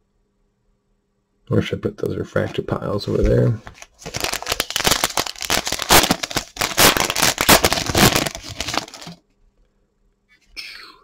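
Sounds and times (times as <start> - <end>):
foil wrapper crinkling: 3.6 - 9.2.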